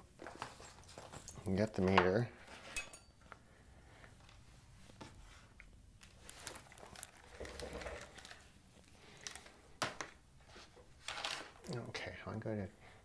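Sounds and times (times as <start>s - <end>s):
faint rustling of hands: 0.0s - 1.6s, 2.4s - 9.8s.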